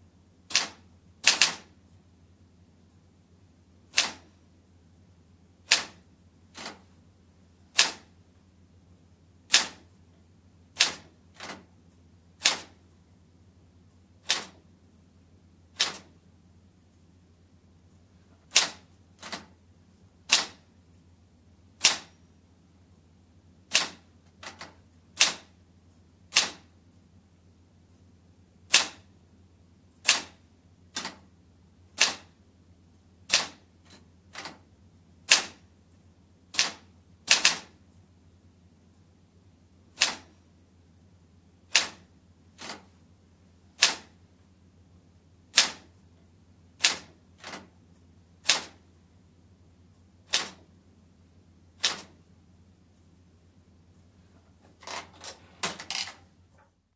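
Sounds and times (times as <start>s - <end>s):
manual typewriter key strikes: 0.5s - 1.7s, 3.9s - 4.3s, 5.7s - 6.8s, 7.7s - 8.0s, 10.8s - 11.6s, 12.4s - 12.8s, 14.2s - 14.6s, 15.8s - 16.1s, 18.5s - 19.5s, 20.3s - 20.6s, 21.8s - 22.2s, 23.7s - 25.5s, 26.3s - 26.6s, 28.7s - 29.0s, 30.0s - 31.2s, 32.0s - 32.3s, 33.3s - 34.6s, 36.5s - 37.7s, 40.0s - 40.3s, 41.7s - 42.0s, 42.6s - 42.9s, 43.8s - 44.1s, 45.5s - 45.9s, 46.8s - 47.7s, 48.4s - 48.8s, 50.3s - 50.6s, 51.8s - 52.1s.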